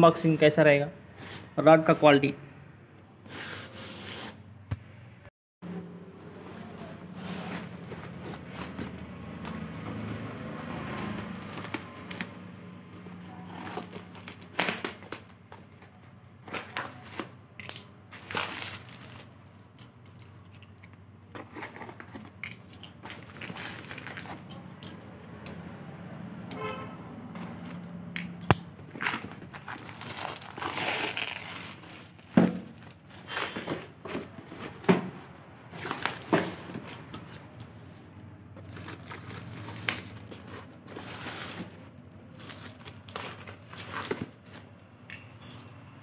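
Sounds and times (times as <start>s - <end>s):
plastic crinkling and rustling: 13.0s - 20.6s, 21.3s - 24.8s, 28.8s - 37.6s, 38.6s - 44.8s.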